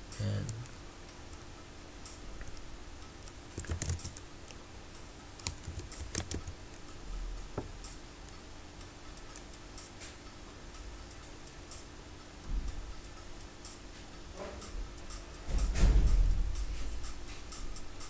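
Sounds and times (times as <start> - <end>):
keyboard keystrokes: 3.5 - 4.2, 5.4 - 6.6.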